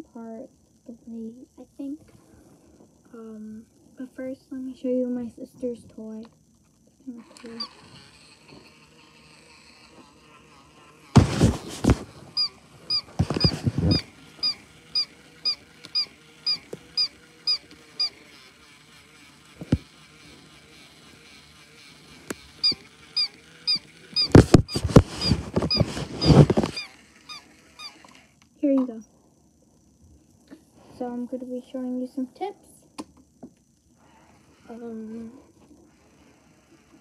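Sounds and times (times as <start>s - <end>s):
rustling against microphone: 11.2s - 14.6s, 24.2s - 26.9s
toy cat squeaky chirping: 12.4s - 18.2s, 22.6s - 28.1s.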